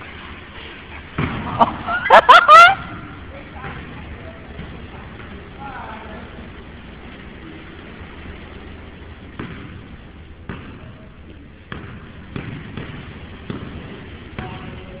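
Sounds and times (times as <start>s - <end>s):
steady background noise: 0.0s - 15.0s
basketball bouncing on hard floor: 1.2s - 1.8s, 9.3s - 11.0s, 11.7s - 15.0s.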